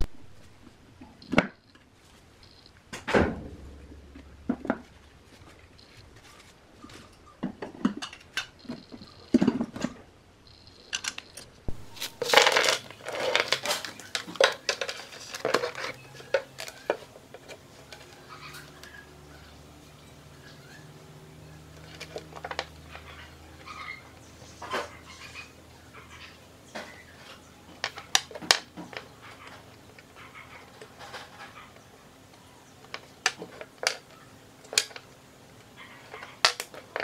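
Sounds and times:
small metal parts clinking: 10.5 - 17.1.

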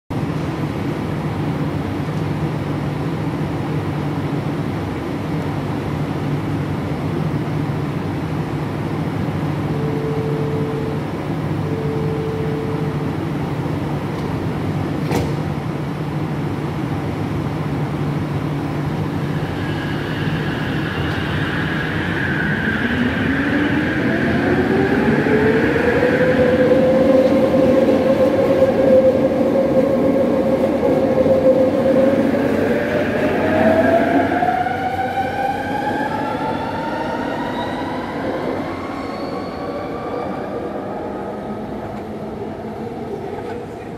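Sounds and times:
metro train humming: 0.1 - 43.9
short beeps: 9.7 - 13.1
train motor whine rising: 19.1 - 42.6.

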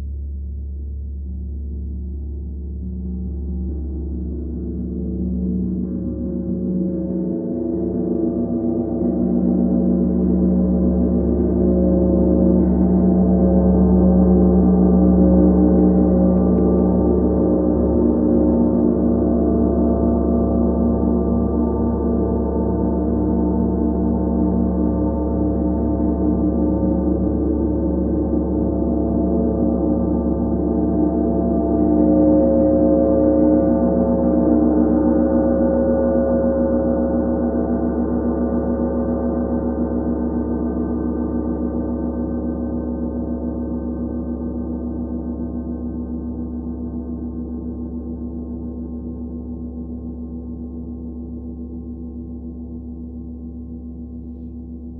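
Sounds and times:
gong played with soft mallet: 5.3 - 42.0.

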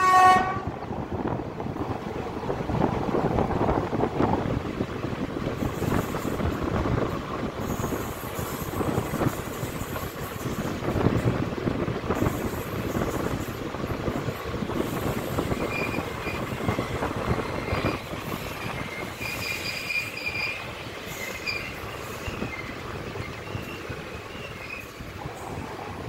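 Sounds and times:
train wheels rumbling on track: 0.0 - 26.0
wheel squeal: 15.0 - 25.1.

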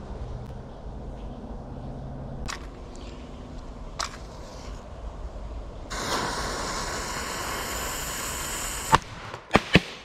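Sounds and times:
firecracker fuse hissing: 5.9 - 9.2.

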